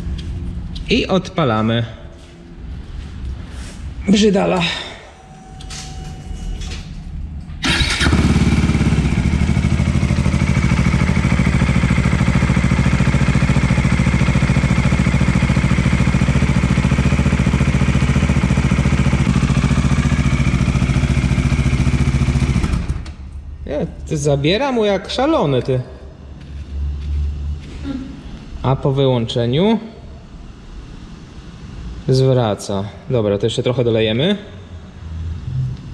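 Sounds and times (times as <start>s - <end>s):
motorcycle engine starting and idling: 4.6s - 23.5s.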